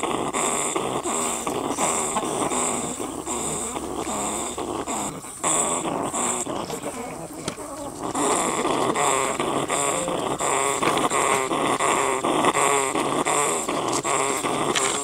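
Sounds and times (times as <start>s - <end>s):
chickens clucking and growling: 0.0s - 15.0s.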